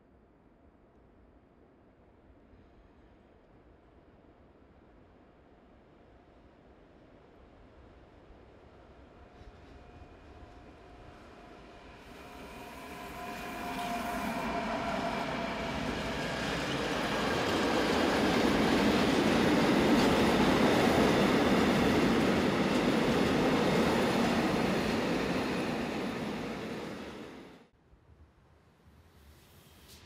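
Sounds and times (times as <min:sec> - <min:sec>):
train wheels rumbling on rails: 0:09.0 - 0:27.7
locomotive tones: 0:12.2 - 0:27.5.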